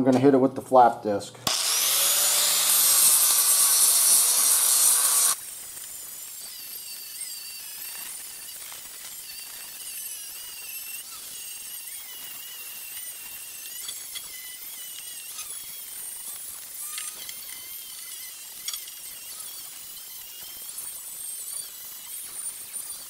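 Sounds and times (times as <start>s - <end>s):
angle grinder grinding steel: 1.4s - 23.0s.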